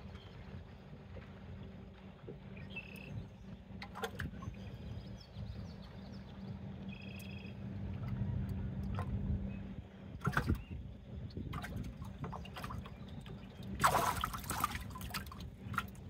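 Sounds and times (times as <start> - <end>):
boat motor humming: 0.0 - 16.0
bird chirping: 4.8 - 7.6.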